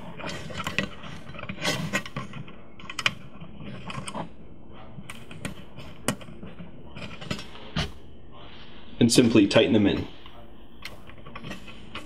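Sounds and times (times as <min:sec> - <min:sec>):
small clicks and rustling: 0:00.0 - 0:04.3.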